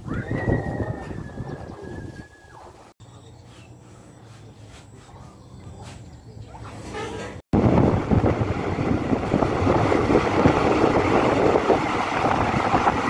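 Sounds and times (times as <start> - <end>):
wind buffeting microphone: 0.0 - 2.9, 7.5 - 13.0
vehicle road noise: 3.0 - 13.0.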